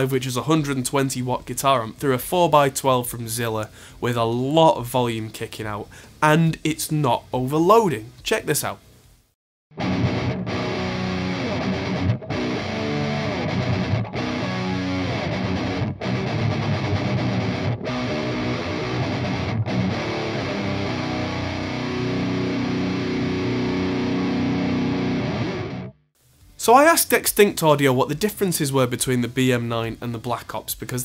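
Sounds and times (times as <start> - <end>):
distorted electric guitar riff: 9.7 - 26.0.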